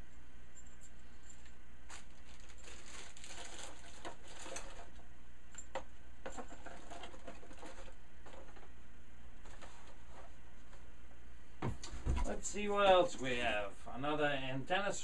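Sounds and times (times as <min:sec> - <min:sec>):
plastic bag crinkling: 0:01.2 - 0:05.0.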